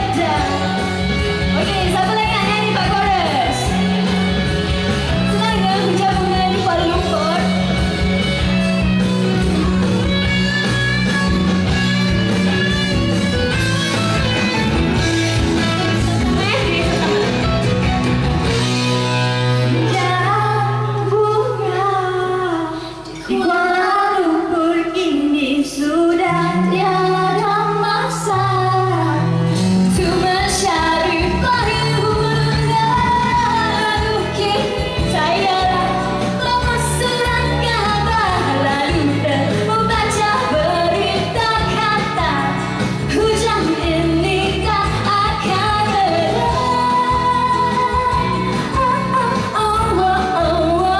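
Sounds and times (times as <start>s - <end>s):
woman singing: 0.0s - 8.0s, 19.6s - 50.9s
steady bass line: 0.0s - 22.5s, 28.3s - 50.9s
guitar: 0.0s - 50.9s.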